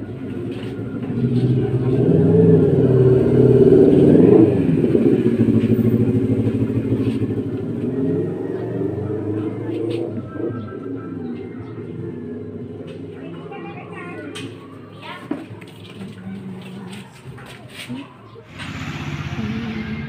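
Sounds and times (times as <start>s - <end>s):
vehicle engine running: 0.0s - 13.1s, 18.5s - 20.0s.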